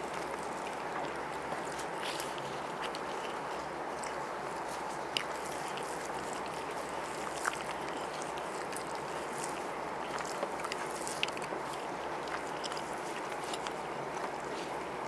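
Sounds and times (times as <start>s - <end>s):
people eating by hand: 0.0s - 15.0s.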